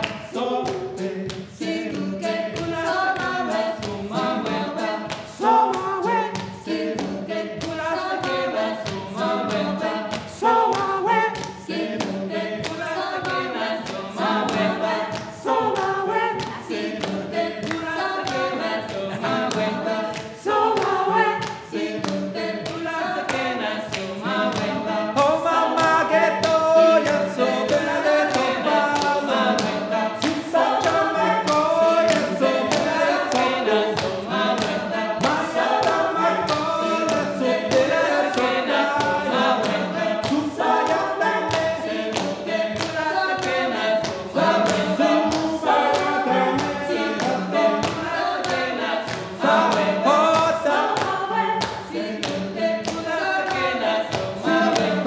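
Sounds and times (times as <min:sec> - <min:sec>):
group singing a cappella: 0:00.0 - 0:55.0
hand claps: 0:00.0 - 0:55.0.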